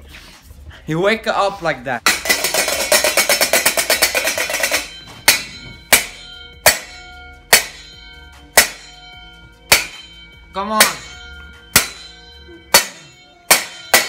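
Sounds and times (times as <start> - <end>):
metal pot lid banging: 2.1 - 7.9, 11.8 - 14.0.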